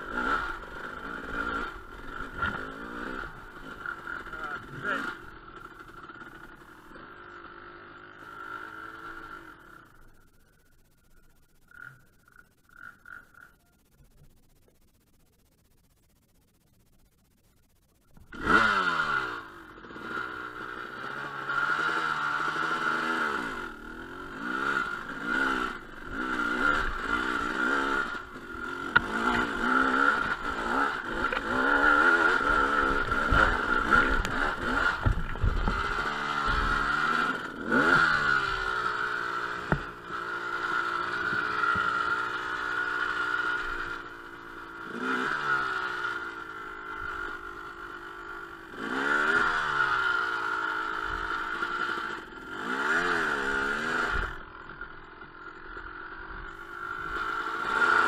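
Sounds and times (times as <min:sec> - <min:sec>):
dirt bike engine revving: 0:00.0 - 0:10.5, 0:18.2 - 0:58.0
bike clattering over rough ground: 0:28.9 - 0:37.1.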